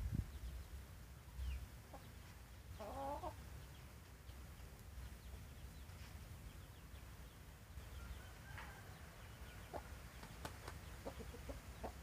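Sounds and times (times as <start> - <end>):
chicken clucking: 1.4 - 3.4, 8.0 - 12.0.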